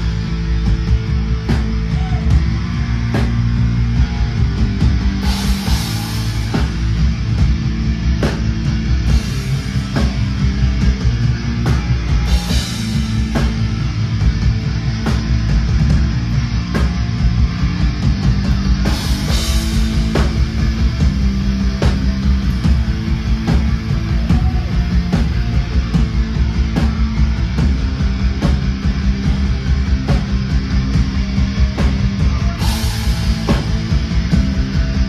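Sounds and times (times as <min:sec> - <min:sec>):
distorted electric guitars: 0:00.0 - 0:35.0
heavy drum kit: 0:00.0 - 0:35.0.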